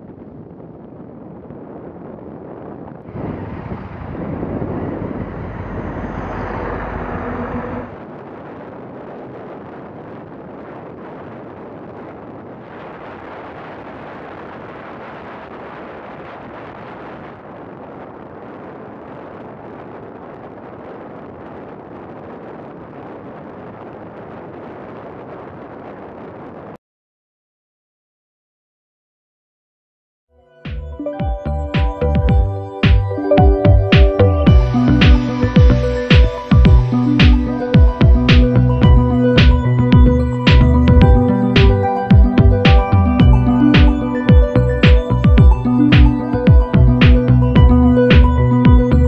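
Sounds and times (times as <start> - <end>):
wind rush over microphone: 0.0 - 26.8, 31.6 - 49.0
motorcycle engine and road noise: 2.7 - 17.9
low steady hum: 3.0 - 8.6, 31.5 - 49.0.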